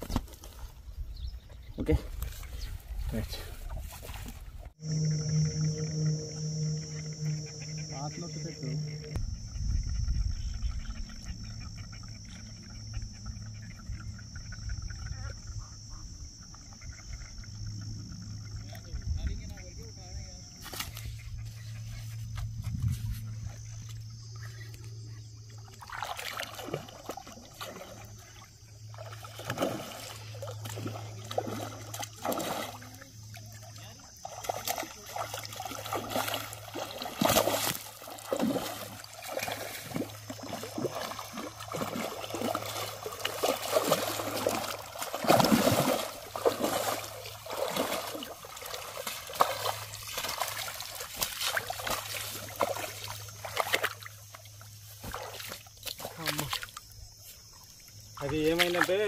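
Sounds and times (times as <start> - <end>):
fish splashing in water: 25.6 - 59.0.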